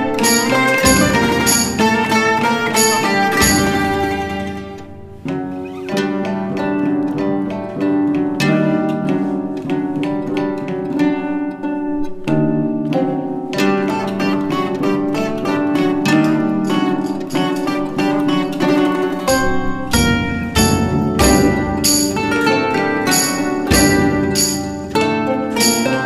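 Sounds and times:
plucked string instrument melody: 0.0 - 26.0.

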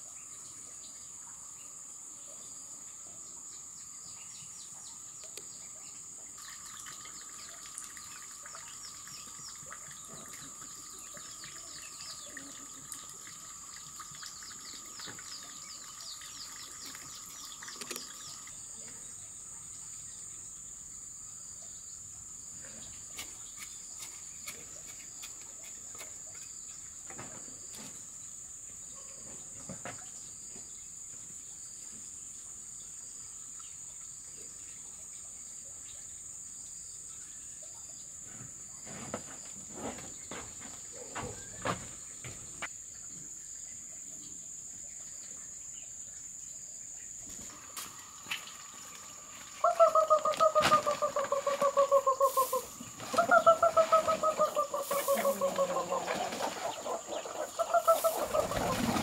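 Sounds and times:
insects droning: 0.0 - 59.0
trowel and hands in soil: 23.1 - 26.6
rapid chirping calls: 49.6 - 59.0.

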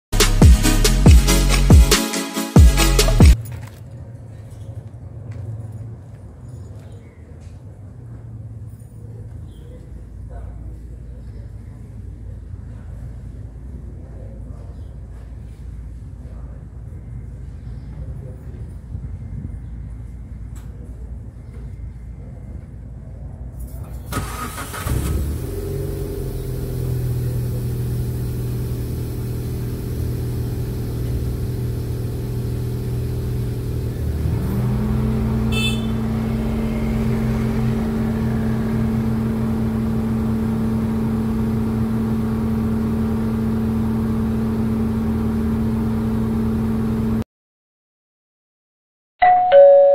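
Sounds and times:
car engine running: 24.2 - 47.2.

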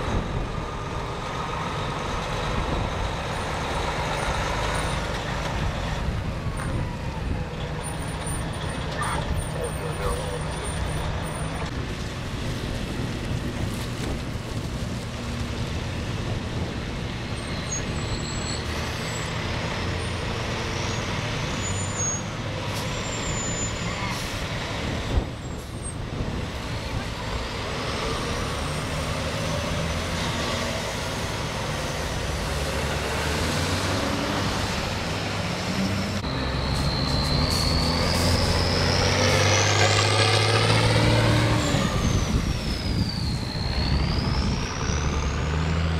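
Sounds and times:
fire truck diesel engines: 0.0 - 45.9
truck passing close: 0.0 - 45.9.

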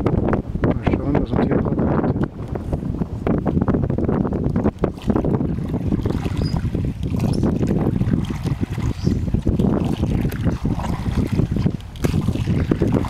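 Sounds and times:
wind buffeting microphone: 0.0 - 13.0
water splashing around oar: 2.1 - 13.0.

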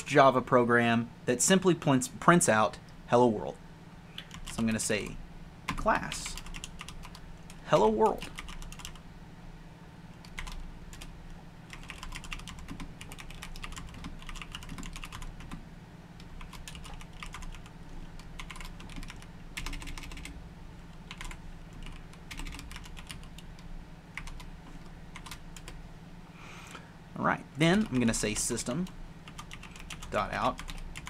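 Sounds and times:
low steady hum: 0.0 - 31.0
typing on computer keyboard: 4.2 - 4.6, 6.3 - 9.0, 10.2 - 11.1, 11.7 - 15.6, 16.2 - 20.4, 21.1 - 25.8, 29.3 - 31.0.

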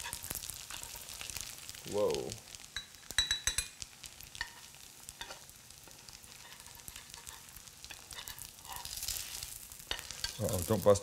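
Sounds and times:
butter sizzling in a skillet: 0.0 - 11.0
metal spoon clicking on pan: 2.8 - 3.8.

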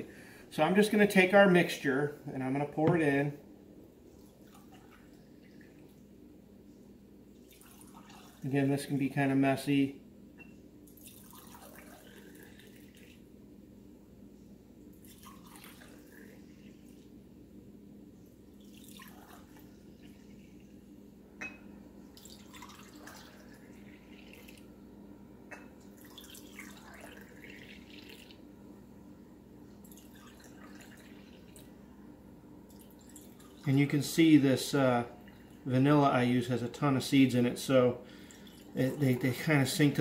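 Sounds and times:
liquid trickling into glass jars: 7.4 - 8.6, 10.9 - 13.2, 15.0 - 16.4, 18.6 - 20.3, 22.1 - 24.6, 25.6 - 28.4, 29.8 - 31.7, 32.7 - 33.9, 38.2 - 39.5.

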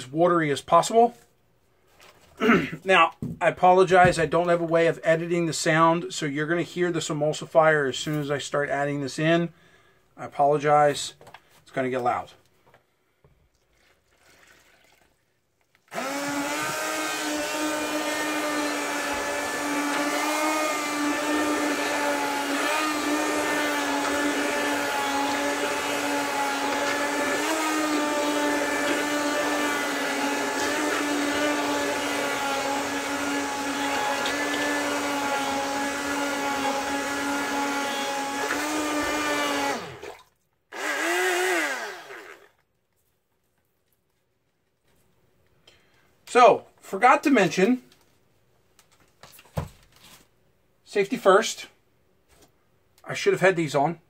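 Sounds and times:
immersion blender motor whining: 15.9 - 42.6.

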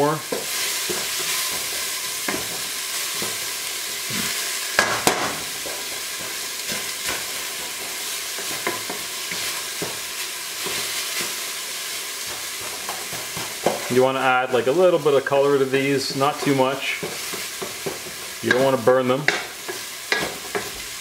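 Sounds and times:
onion sizzling in a pot: 0.0 - 21.0
wooden spatula scraping pot: 16.0 - 20.9.

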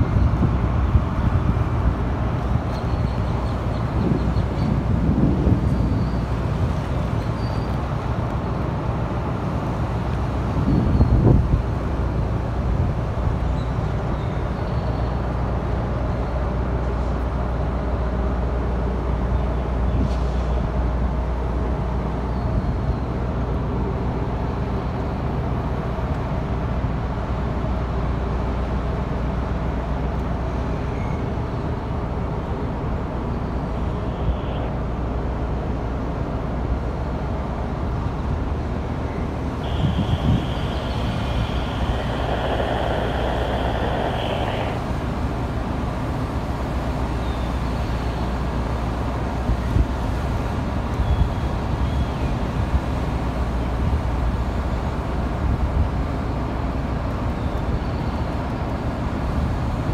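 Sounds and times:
heavy engines idling: 31.9 - 49.6
faint high whine: 39.0 - 46.4.

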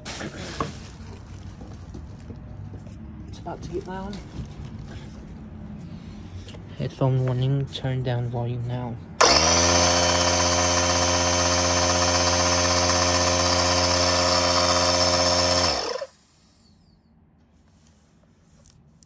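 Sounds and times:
air compressor running: 9.2 - 16.2.

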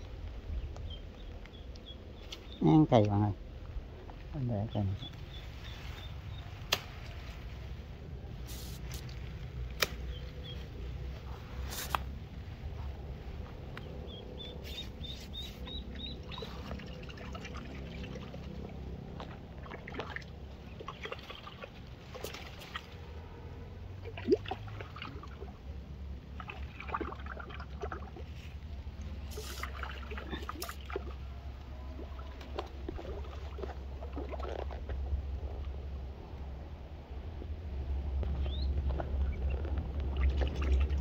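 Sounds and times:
rustling leaves and grass: 0.0 - 24.7, 28.1 - 41.0
steady low rumble: 0.0 - 41.0
water trickling and splashing: 8.6 - 35.8, 38.2 - 41.0.

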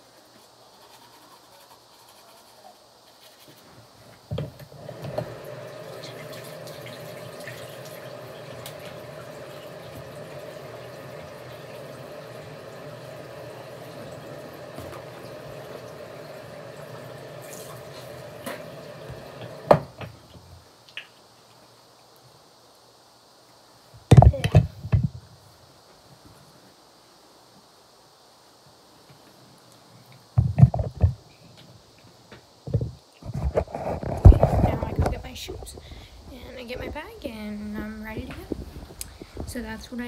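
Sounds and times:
sink tap running: 4.4 - 20.0.

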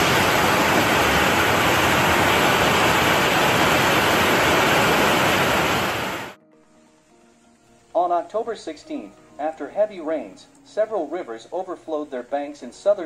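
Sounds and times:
floodwater rushing in river: 0.0 - 6.4.

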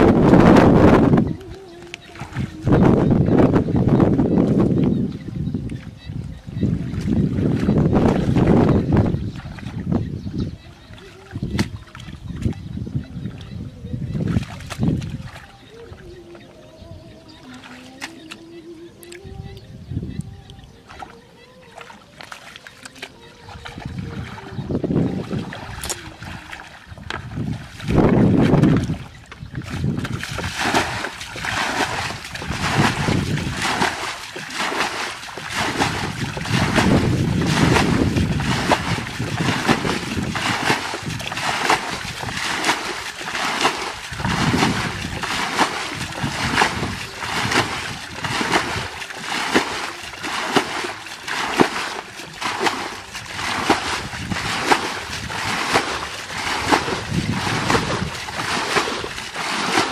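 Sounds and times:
bucket splashing water: 20.9 - 59.9.

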